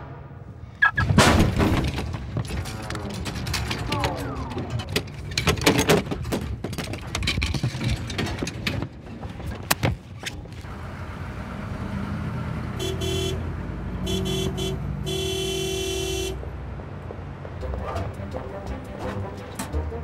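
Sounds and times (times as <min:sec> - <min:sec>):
low traffic rumble: 0:00.0 - 0:20.0
crashes and clattering knocks: 0:01.0 - 0:10.2
car horn honks: 0:12.7 - 0:16.5.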